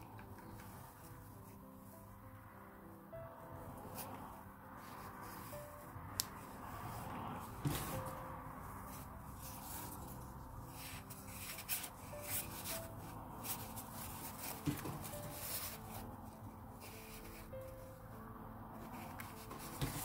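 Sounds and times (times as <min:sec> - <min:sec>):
satin ribbon rustling: 0:03.9 - 0:18.1, 0:18.8 - 0:20.0.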